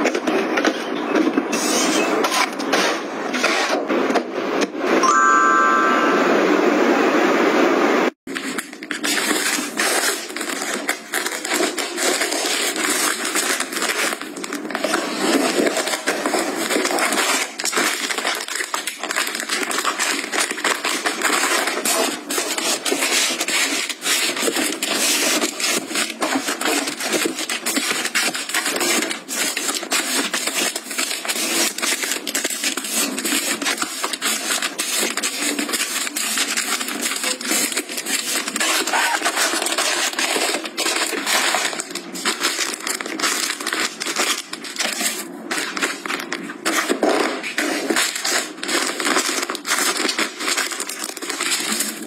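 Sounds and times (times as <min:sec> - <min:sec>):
brief tone: 0:05.0 - 0:07.4
plastic wrap crinkling: 0:08.3 - 0:52.0.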